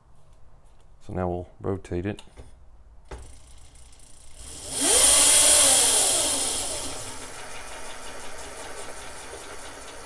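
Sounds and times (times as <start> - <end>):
electric motor and chain whining: 3.2 - 10.0.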